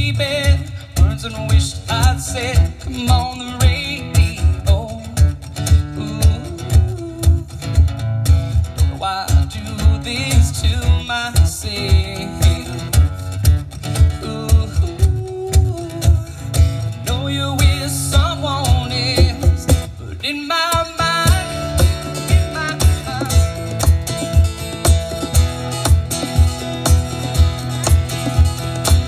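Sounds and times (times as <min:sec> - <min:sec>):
man singing: 0:00.0 - 0:07.9, 0:08.8 - 0:13.1, 0:14.0 - 0:24.6
cajon beat: 0:00.0 - 0:29.0
strummed acoustic guitar: 0:00.0 - 0:29.0.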